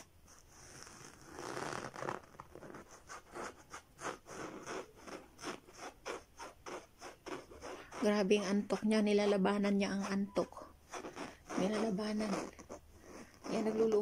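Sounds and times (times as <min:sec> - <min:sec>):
rhythmic scratching: 0:03.9 - 0:10.7, 0:11.4 - 0:12.7.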